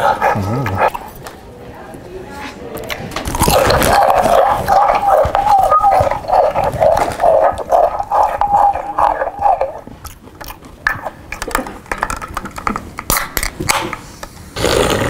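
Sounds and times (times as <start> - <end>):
chewing through a megaphone: 0.0 - 1.4, 2.4 - 12.7.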